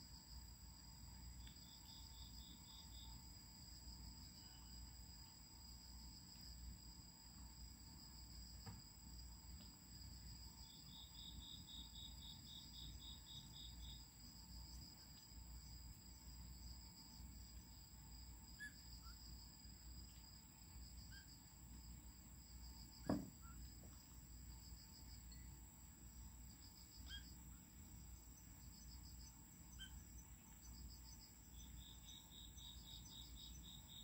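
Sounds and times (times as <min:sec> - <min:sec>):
night insects chirping: 0:00.0 - 0:34.0
sharp knock: 0:23.0 - 0:23.4.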